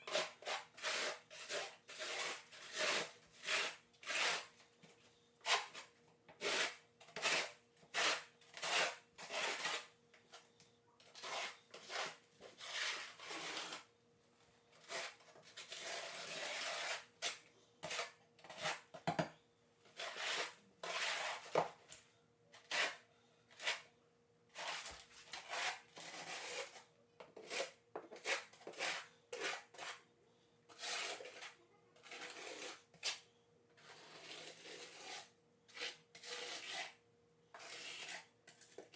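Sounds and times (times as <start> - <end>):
trowel scraping mortar: 0.0 - 4.6, 5.4 - 10.0, 11.1 - 13.9, 14.8 - 19.0, 19.9 - 22.0, 22.6 - 23.9, 24.5 - 30.0, 30.7 - 33.2, 33.8 - 37.0, 37.6 - 38.9.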